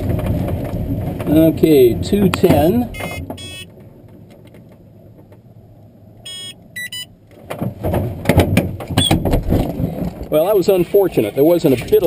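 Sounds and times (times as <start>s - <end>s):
glider rolling on grass rumble: 0.0s - 2.9s
bumps and rattles: 0.0s - 5.6s, 7.3s - 12.0s
short electronic beeps: 3.0s - 3.7s, 6.3s - 7.1s.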